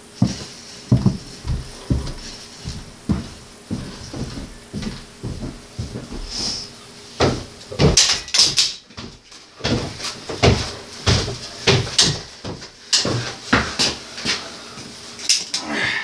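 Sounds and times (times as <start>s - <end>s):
tools knocking on bicycle: 7.2s - 13.2s.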